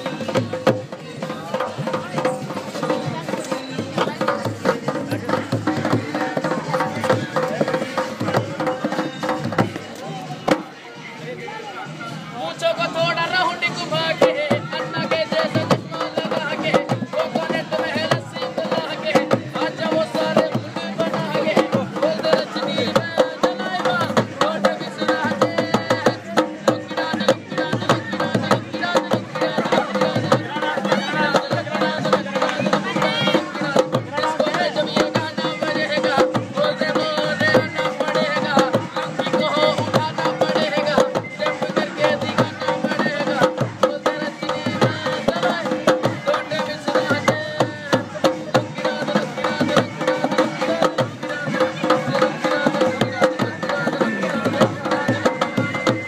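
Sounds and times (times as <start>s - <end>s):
dholak hand drum fast beat: 0.0s - 56.0s
person singing: 13.6s - 56.0s.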